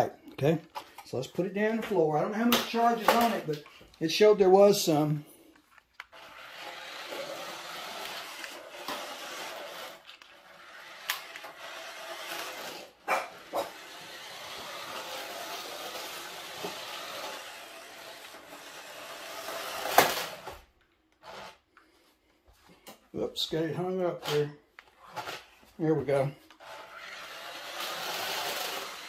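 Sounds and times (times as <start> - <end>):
toy car motor whirring: 5.9 - 21.6, 26.5 - 29.0.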